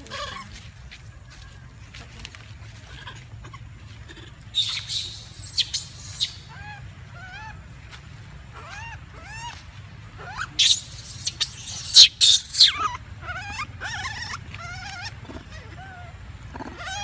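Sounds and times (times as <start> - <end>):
monkeys calling: 0.0 - 0.7, 2.8 - 7.8, 8.4 - 17.0
harsh noisy monkey bursts: 10.3 - 14.2.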